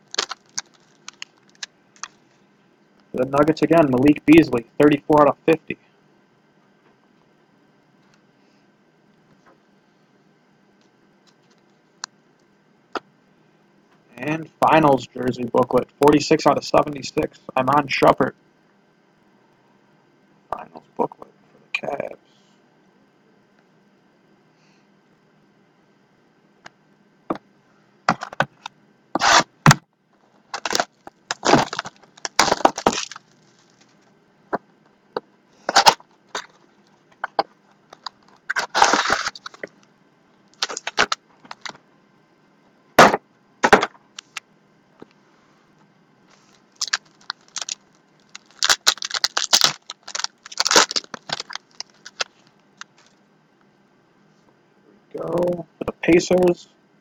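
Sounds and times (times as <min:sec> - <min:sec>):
card pack wrappers crinkling and tearing: 0:00.0 - 0:02.2, 0:29.2 - 0:29.4, 0:30.5 - 0:34.1, 0:35.7 - 0:36.6, 0:37.9 - 0:39.8, 0:40.6 - 0:41.8, 0:46.3 - 0:53.1.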